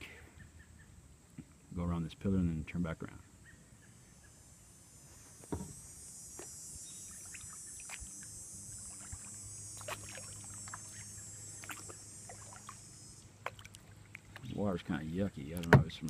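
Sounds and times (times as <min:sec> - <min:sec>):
steady high hiss: 0:00.0 - 0:16.0
paddle strokes in water: 0:07.2 - 0:14.5.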